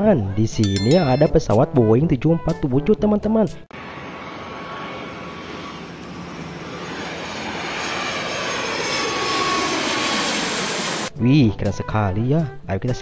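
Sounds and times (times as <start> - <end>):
jet engines roaring with whine: 3.8 - 11.1.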